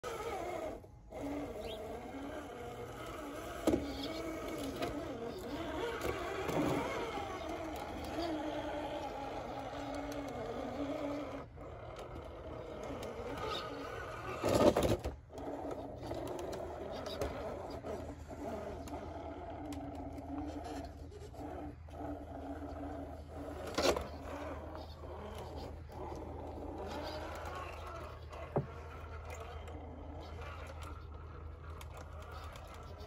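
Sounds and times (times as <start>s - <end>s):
electric motor whining: 0.0s - 33.0s.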